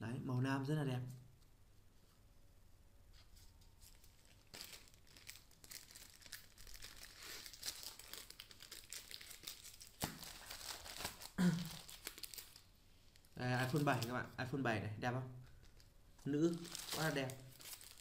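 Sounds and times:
plastic packaging crinkling: 3.7 - 14.2, 15.6 - 18.0.

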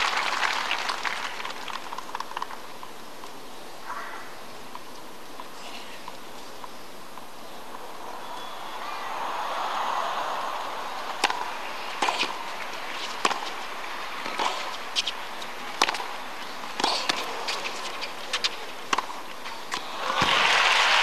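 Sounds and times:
tennis ball bouncing: 10.9 - 20.4
racket hitting tennis ball: 10.9 - 20.6.

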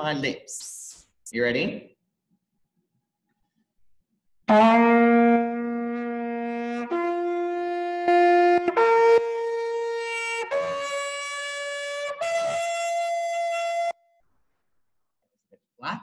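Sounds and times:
trumpet playing held notes: 4.5 - 14.0.

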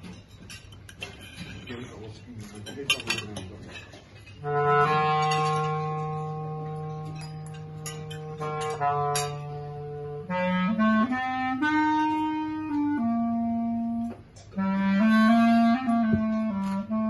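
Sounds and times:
clarinet long held note: 4.4 - 17.0.

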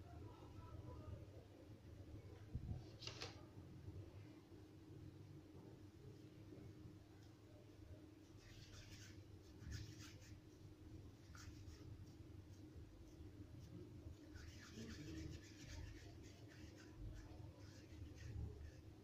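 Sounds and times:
hands rubbing dough in bowl: 8.4 - 19.0.

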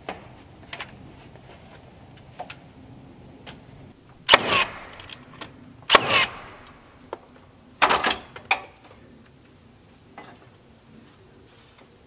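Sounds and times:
nail gun firing into wood: 4.2 - 6.9.

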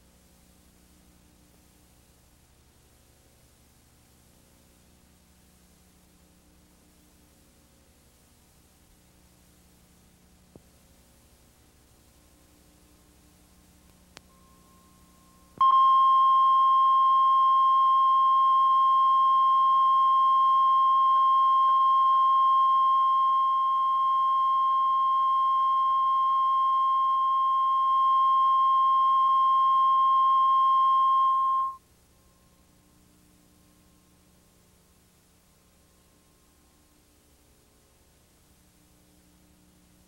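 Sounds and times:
low tape noise: 0.0 - 40.0
faint click: 13.8 - 14.3
steady test tone: 14.3 - 32.7.

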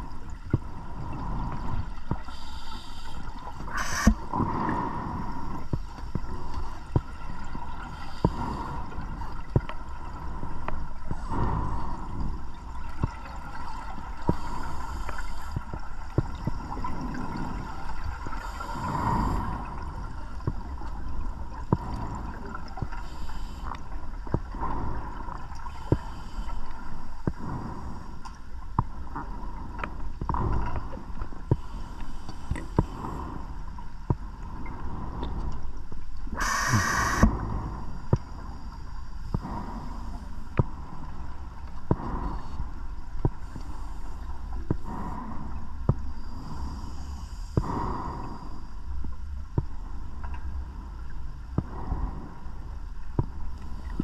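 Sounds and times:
underwater hum: 0.0 - 54.0
regulator hissing inhalations: 2.3 - 4.2, 36.3 - 37.8.

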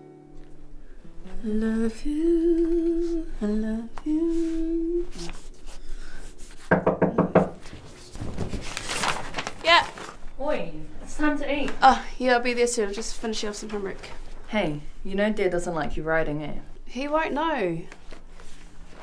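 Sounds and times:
woman humming a slow melody: 1.1 - 5.5
knuckle knocks on wooden door: 6.7 - 7.6.

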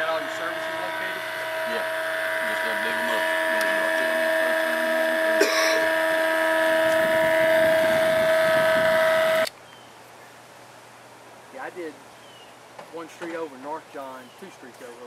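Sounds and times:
high-pitched motor whine: 0.0 - 9.5.

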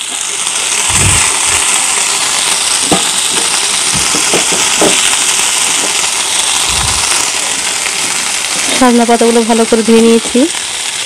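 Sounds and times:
oil sizzling in a frying pan: 0.0 - 11.0
leaves landing in pan: 0.8 - 7.6.

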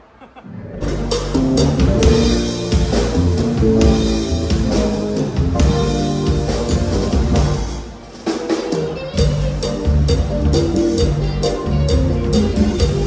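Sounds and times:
bass guitar: 0.5 - 8.0, 8.6 - 13.0
drum kit: 0.8 - 13.0
electric guitar: 8.5 - 13.0.

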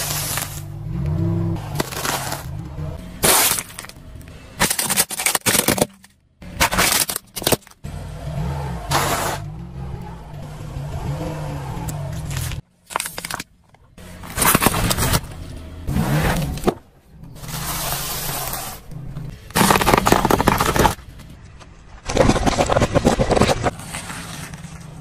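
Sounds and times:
tyre crushing objects: 0.0 - 4.0, 4.6 - 7.8, 14.2 - 15.3, 19.4 - 21.4, 22.0 - 25.0
car engine hum: 0.0 - 4.6, 6.1 - 21.9.

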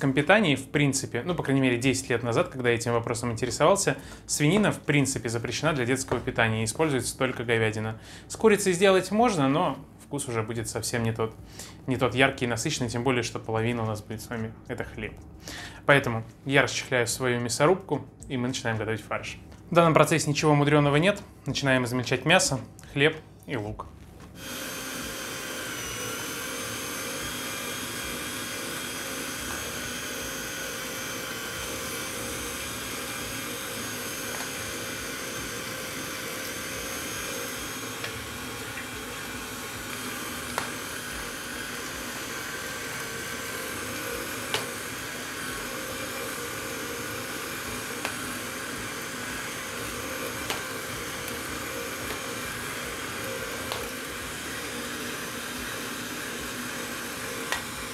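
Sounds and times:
electric meat grinder running: 24.4 - 57.9.

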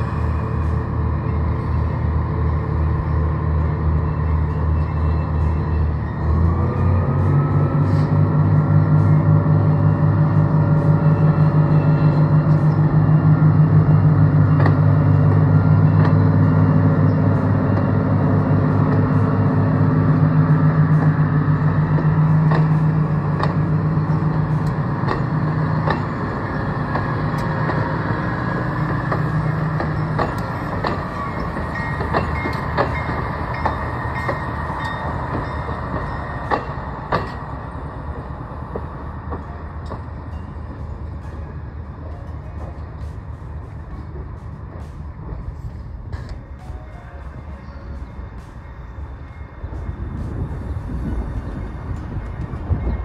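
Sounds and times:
diesel engines droning: 0.0 - 53.0
train wheels clicking over rail joints: 7.2 - 46.8.

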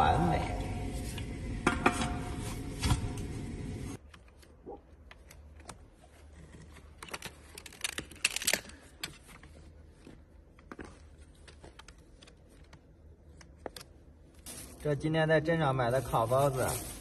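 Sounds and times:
small clicks and rustling: 4.0 - 14.5.

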